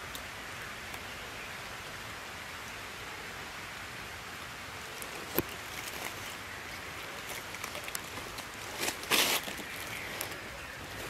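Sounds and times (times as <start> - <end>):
steady background hiss: 0.0 - 11.0
footsteps crunching through dry leaves: 5.0 - 11.0.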